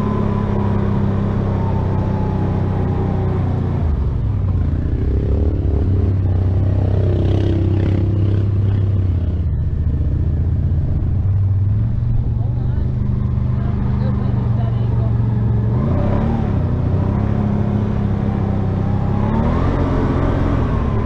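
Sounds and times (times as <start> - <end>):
atv engine running: 0.0 - 21.0.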